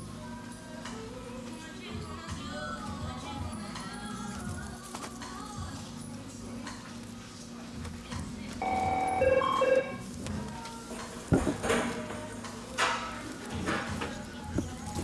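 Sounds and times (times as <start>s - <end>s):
low steady hum: 0.0s - 15.0s
electronic two-note ring: 8.6s - 10.0s.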